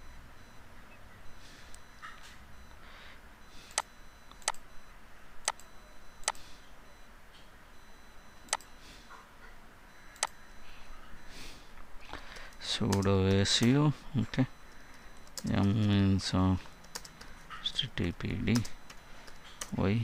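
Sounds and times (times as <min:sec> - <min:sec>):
computer mouse clicking: 0:03.7 - 0:04.6, 0:05.4 - 0:06.4, 0:08.4 - 0:08.7, 0:16.8 - 0:17.3.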